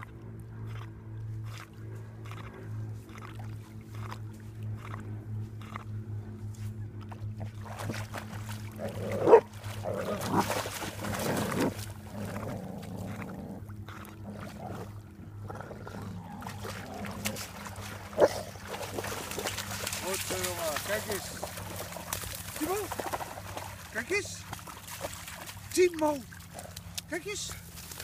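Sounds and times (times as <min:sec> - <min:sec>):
dogs splashing in water: 0:06.9 - 0:28.0
dog barking: 0:09.2 - 0:09.5.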